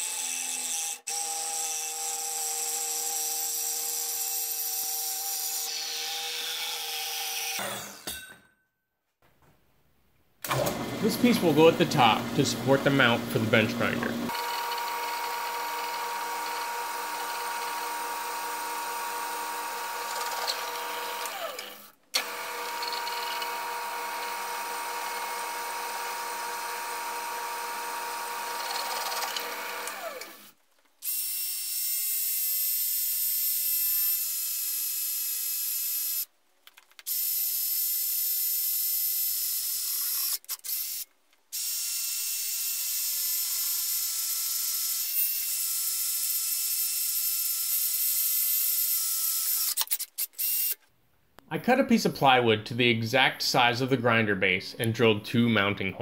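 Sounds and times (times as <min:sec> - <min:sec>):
drill press motor hum: 0:10.4 - 0:30.5
cordless drill whine: 0:14.3 - 0:30.5.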